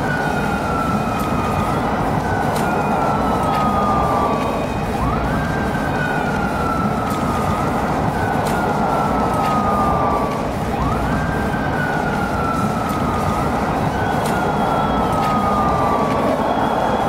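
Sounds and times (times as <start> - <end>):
motorcycle siren wailing: 0.0 - 17.0
traffic noise: 0.0 - 17.0.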